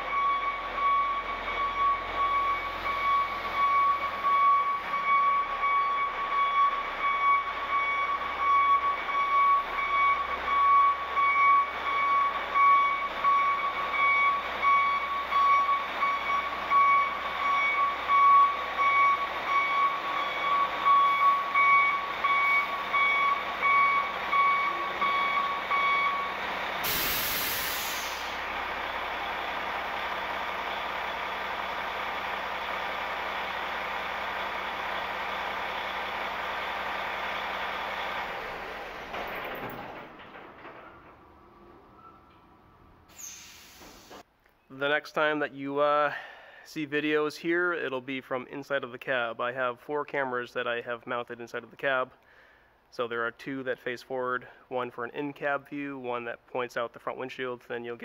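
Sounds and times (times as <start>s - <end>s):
truck backup alarm beeping: 0.0s - 39.9s
diesel engine idling: 0.0s - 43.6s
air brakes hissing: 26.8s - 28.8s, 43.1s - 44.2s.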